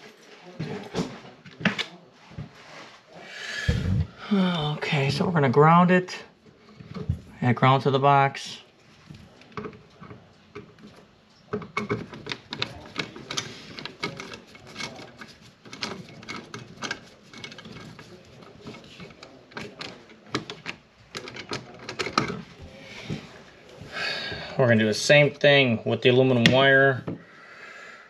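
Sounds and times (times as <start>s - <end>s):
wires clicking and scraping on metal box: 8.8s - 22.6s.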